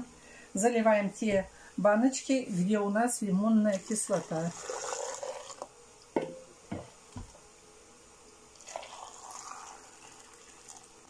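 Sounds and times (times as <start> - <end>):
liquid pouring into jars: 3.7 - 5.8, 8.5 - 11.0
kitchenware knocking: 6.2 - 6.9.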